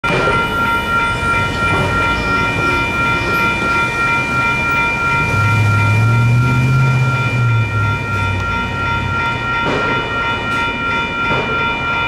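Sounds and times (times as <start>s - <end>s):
railroad crossing bells ringing: 0.0s - 12.0s
passing road traffic: 0.1s - 11.6s.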